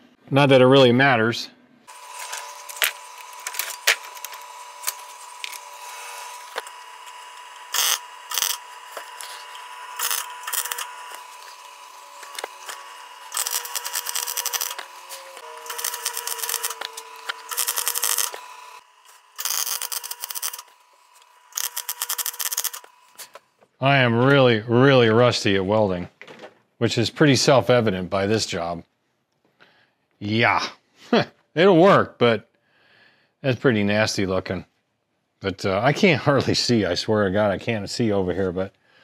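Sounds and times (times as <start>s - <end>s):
steady hum: 1.7s - 23.6s
welder arc crackling: 1.9s - 23.4s.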